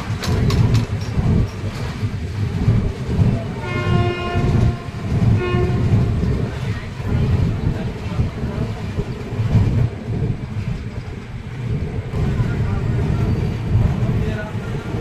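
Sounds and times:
train horn blasts: 3.6 - 6.2.

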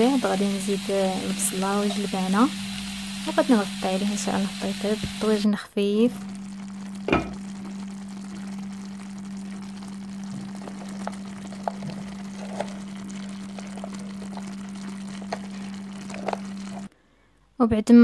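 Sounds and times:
chicken and onion sizzling: 0.0 - 16.9
low hum: 6.1 - 16.9
small pops and crackles: 6.2 - 17.0.

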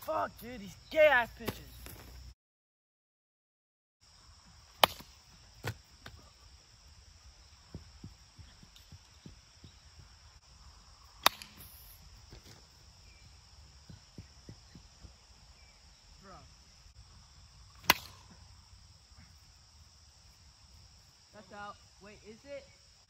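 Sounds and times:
insects humming: 0.0 - 2.4, 4.0 - 23.0
plastic bat hitting ball: 4.8 - 5.8, 11.2 - 11.8, 17.8 - 18.4.

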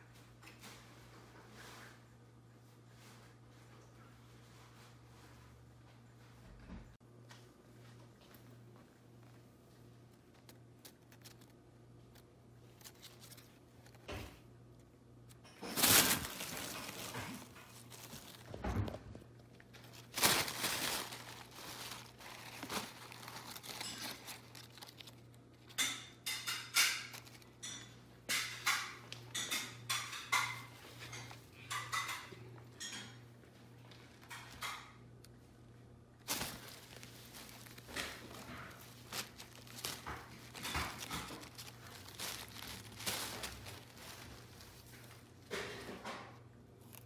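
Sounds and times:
tissue paper rustling and crinkling: 15.6 - 25.4, 36.2 - 45.8.

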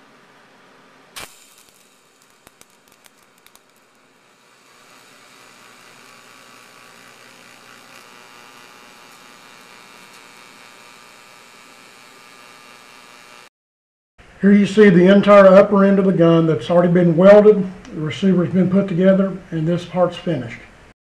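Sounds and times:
welding arc hissing and buzzing: 1.1 - 13.5.

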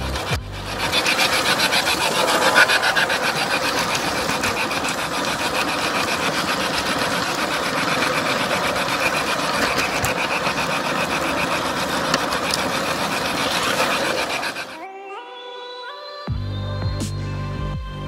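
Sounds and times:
model train wheels rattling on rails: 0.0 - 14.8.

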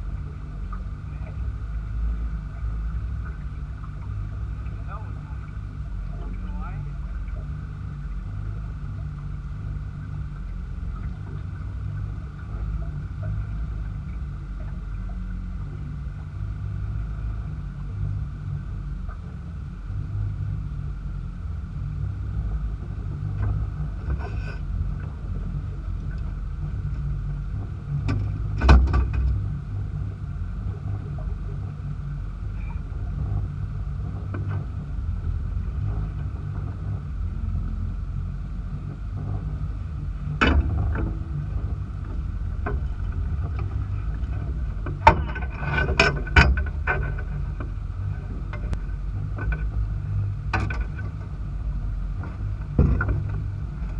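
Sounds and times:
outboard motor rumbling: 0.0 - 53.9
knocks on boat: 28.0 - 29.4, 40.3 - 43.9, 44.8 - 47.7, 52.2 - 53.9.

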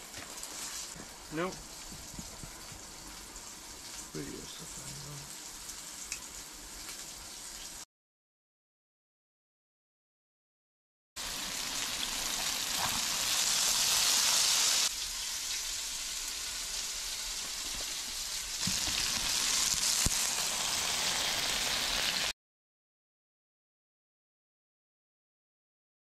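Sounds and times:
fish frying in oil: 0.0 - 7.8, 11.2 - 22.3.

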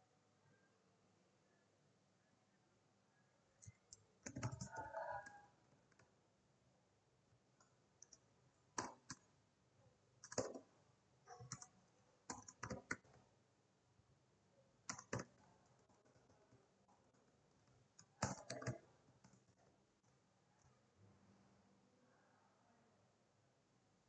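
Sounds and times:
keyboard keys clicking: 3.6 - 4.8, 10.2 - 10.6, 12.3 - 13.1, 14.9 - 15.4, 18.0 - 19.4.

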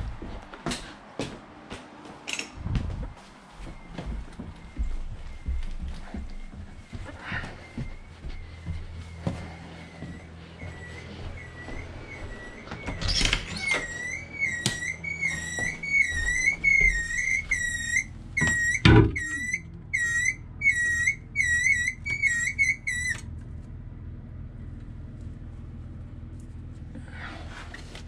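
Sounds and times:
toilet fill valve whistling: 13.6 - 23.3.

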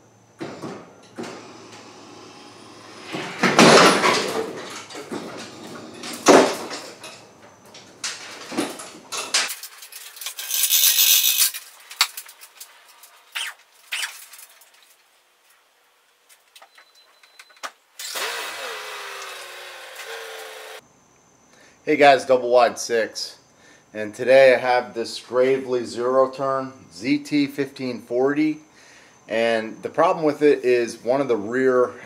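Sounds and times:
metal clanks and knocks: 0.4 - 10.1
chain rattling through hoist: 8.1 - 11.6.

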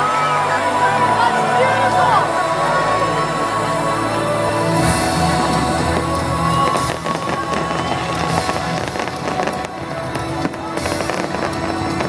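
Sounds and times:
music with long held notes: 0.0 - 12.0
fireworks crackling and popping: 4.5 - 12.0.

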